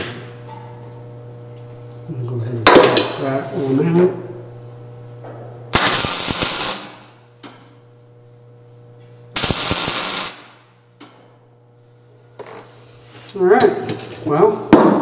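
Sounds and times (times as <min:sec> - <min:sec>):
welder low hum: 0:03.4 - 0:12.4
welding arc crackling: 0:05.7 - 0:07.2, 0:09.3 - 0:10.7.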